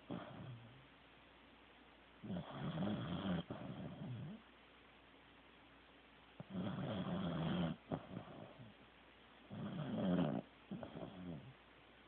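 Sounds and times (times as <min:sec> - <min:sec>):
dog snoring: 0:00.0 - 0:00.8, 0:02.2 - 0:04.4, 0:06.4 - 0:08.8, 0:09.5 - 0:11.6.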